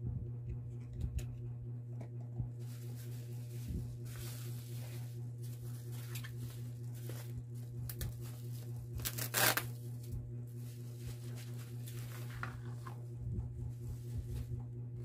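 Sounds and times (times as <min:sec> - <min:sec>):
low hum: 0:00.0 - 0:15.0
bubble wrap rustling and crinkling: 0:02.6 - 0:14.6
tearing sound: 0:09.0 - 0:09.7.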